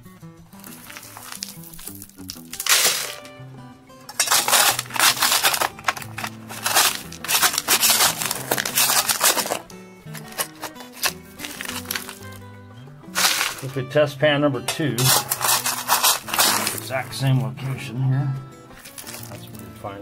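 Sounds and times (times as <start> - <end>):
background music: 0.0 - 20.0
gravel being dug and scraped: 0.6 - 3.4, 4.1 - 12.5, 13.1 - 13.9, 15.0 - 17.4, 18.8 - 19.7.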